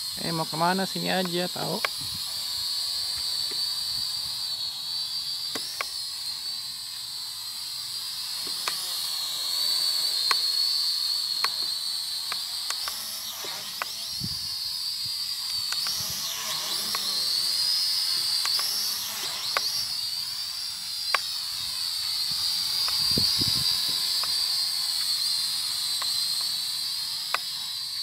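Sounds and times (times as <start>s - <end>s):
drone propellers whining: 0.0s - 28.0s.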